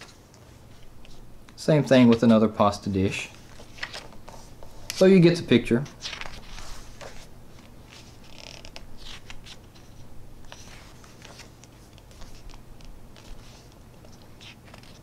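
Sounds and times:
book pages turning: 1.9 - 2.5, 3.2 - 5.2, 5.8 - 15.0.

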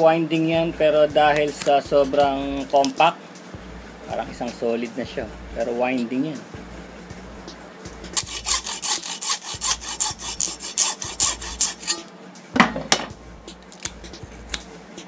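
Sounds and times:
saw cutting metal wire: 8.1 - 12.2
loud knock: 12.6 - 13.2.

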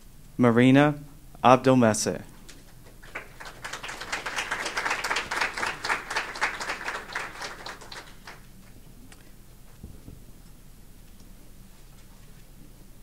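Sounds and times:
audience applauding: 2.9 - 8.5.

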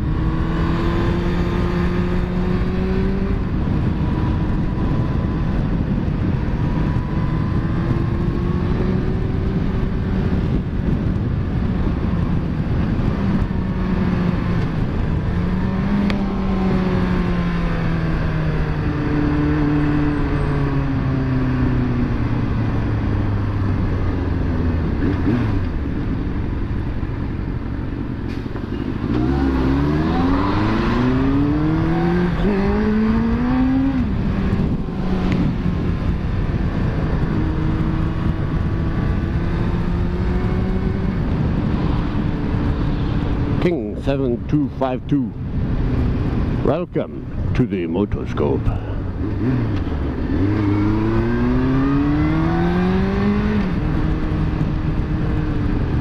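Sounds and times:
wind and road noise: 0.0 - 56.0.

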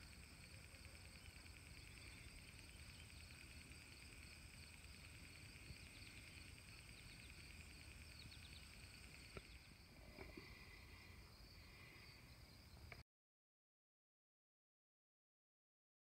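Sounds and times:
insects trilling in grass: 0.0 - 12.7
faint chirps and ticks: 0.0 - 13.0.

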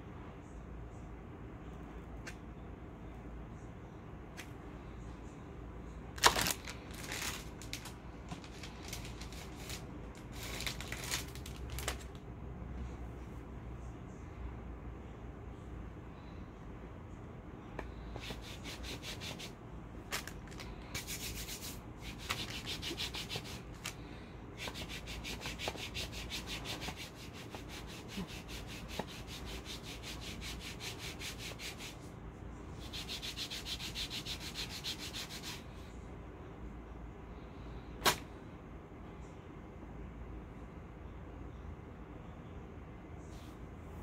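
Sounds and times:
hand rubbing wax strip: 17.9 - 32.1, 32.8 - 35.7
sharp snap: 38.0 - 38.3.

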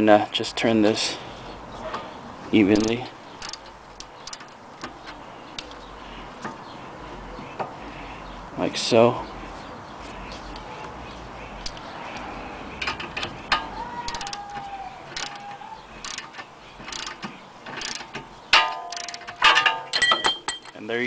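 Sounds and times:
ratchet clicks: 2.8 - 5.8, 12.8 - 18.3, 18.9 - 20.8
sharp metallic crack with ringing: 18.5 - 20.8.

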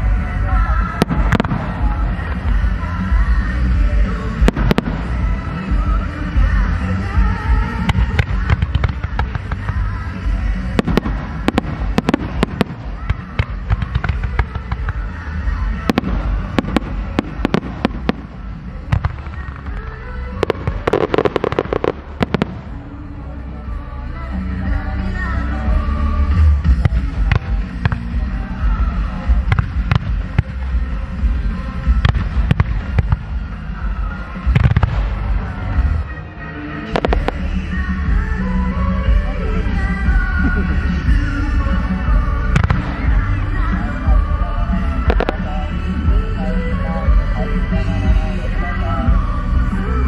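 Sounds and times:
low rumble: 0.0 - 50.0
music: 0.0 - 50.0
fireworks bangs and cracks: 0.9 - 2.8, 3.7 - 22.9, 26.6 - 33.7, 34.4 - 36.0, 36.9 - 38.2, 42.4 - 44.2, 45.0 - 46.0.

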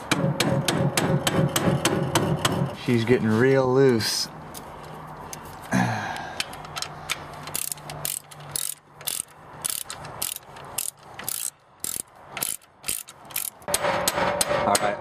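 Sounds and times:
ratchet wrench clicking: 6.4 - 13.7.

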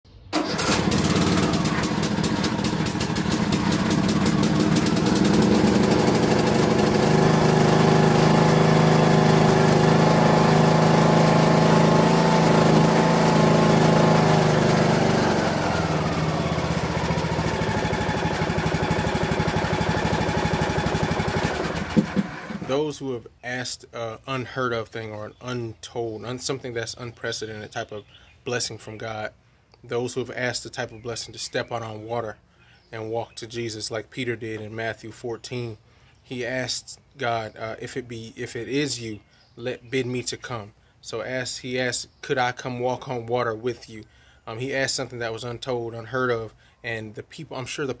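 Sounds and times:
lawn mower engine running: 0.3 - 22.9.

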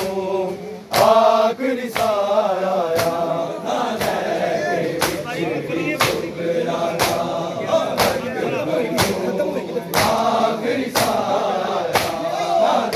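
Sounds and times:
men chanting together: 0.0 - 12.9
crowd striking chests in unison: 0.9 - 12.9.

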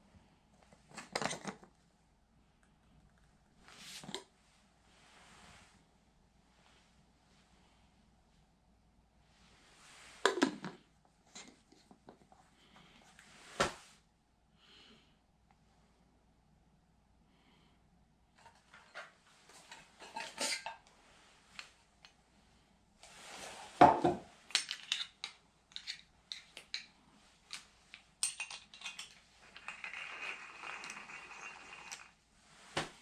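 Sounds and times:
coffee mill grating: 29.4 - 32.1.

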